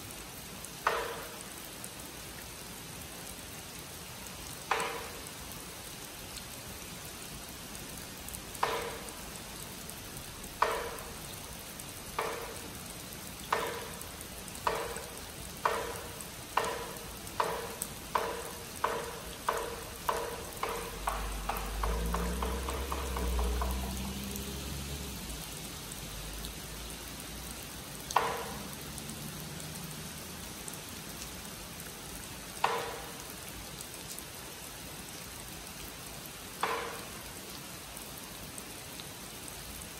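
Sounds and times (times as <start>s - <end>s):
steady rain: 0.0s - 39.9s
wooden clapper struck with mallet: 0.8s - 1.4s, 4.7s - 5.2s, 8.6s - 9.2s, 10.6s - 11.2s, 12.2s - 12.6s, 13.5s - 14.0s, 14.6s - 24.2s, 28.2s - 28.7s, 32.6s - 33.2s, 36.6s - 37.2s.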